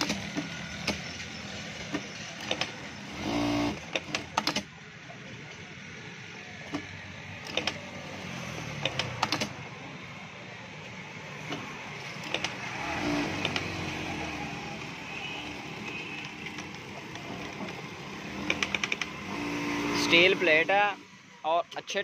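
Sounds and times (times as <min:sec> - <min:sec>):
sewing machine stitching: 0:01.9 - 0:04.7, 0:07.4 - 0:07.8, 0:15.4 - 0:21.0
sharp clicks: 0:08.7 - 0:09.6, 0:13.4 - 0:13.7, 0:18.4 - 0:19.1.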